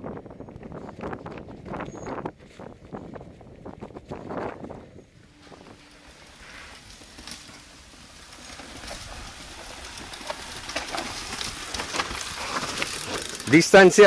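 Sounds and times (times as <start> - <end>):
tyres crunching over gravel: 5.2 - 14.0.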